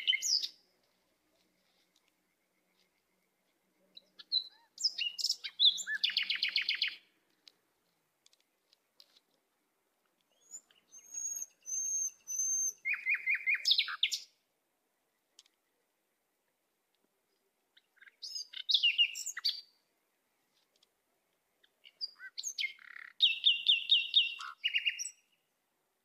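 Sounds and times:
bird calling: 0:00.0 - 0:00.6, 0:03.9 - 0:07.0, 0:10.3 - 0:14.3, 0:21.6 - 0:25.3.

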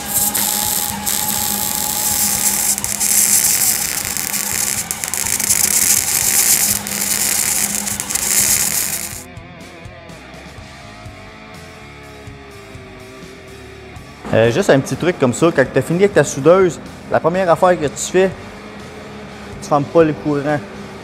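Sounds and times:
welding arc crackling: 0:00.0 - 0:09.3.

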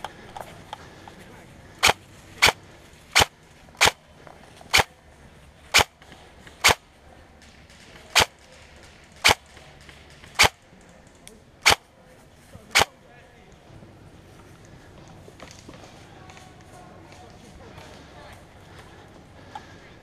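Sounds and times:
airsoft rifle shots: 0:01.8 - 0:04.0, 0:04.7 - 0:04.9, 0:05.7 - 0:06.0, 0:06.6 - 0:06.8, 0:07.7 - 0:10.7, 0:11.6 - 0:11.9, 0:12.7 - 0:12.9.

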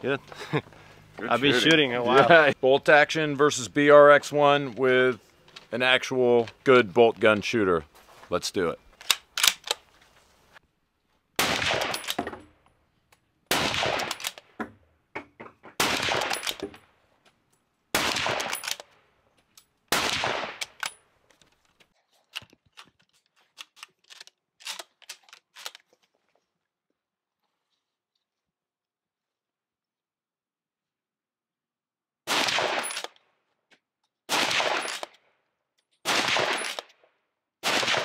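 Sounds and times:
rifle bolt clicks: 0:09.0 - 0:09.8, 0:11.8 - 0:12.2, 0:14.0 - 0:14.5, 0:16.2 - 0:16.7, 0:18.4 - 0:18.9, 0:20.6 - 0:21.5, 0:23.6 - 0:25.8, 0:32.8 - 0:33.2
rifle shots: 0:11.4 - 0:12.2, 0:13.5 - 0:14.5, 0:15.8 - 0:16.6, 0:17.9 - 0:18.9, 0:19.9 - 0:20.9, 0:32.3 - 0:33.1, 0:34.3 - 0:35.2, 0:36.0 - 0:37.0, 0:37.6 - 0:38.0.

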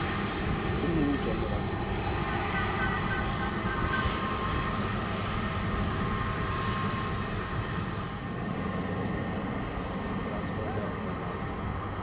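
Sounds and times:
jet engines rumbling with whine: 0:00.0 - 0:12.0.

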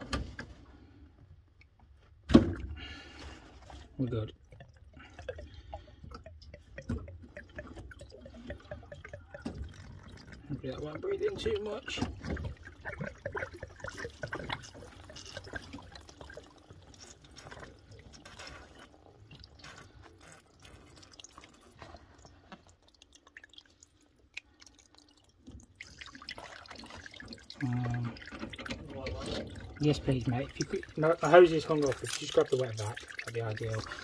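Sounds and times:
water dripping from pipes: 0:01.4 - 0:34.0.

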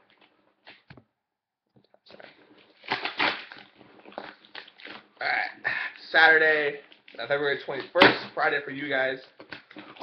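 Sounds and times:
tape and cardboard tearing: 0:02.6 - 0:05.0.

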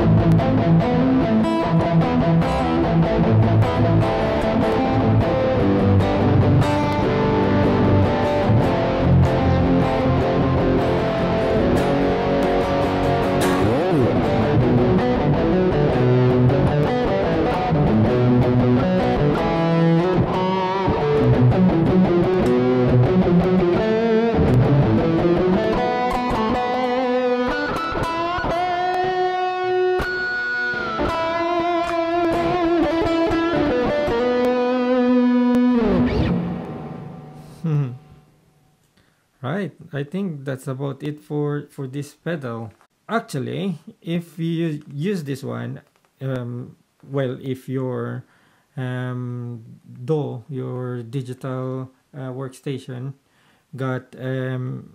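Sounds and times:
overdriven electric guitar: 0:00.0 - 0:38.6.

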